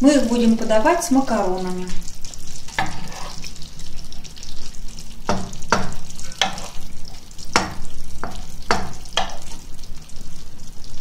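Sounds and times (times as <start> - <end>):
metal spoon scraping a frying pan: 2.7 - 3.6, 5.7 - 6.9.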